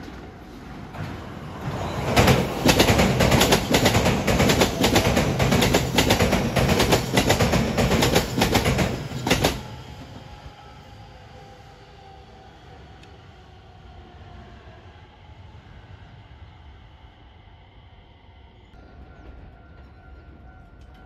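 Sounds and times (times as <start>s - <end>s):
train wheels clattering over joints: 2.2s - 9.7s.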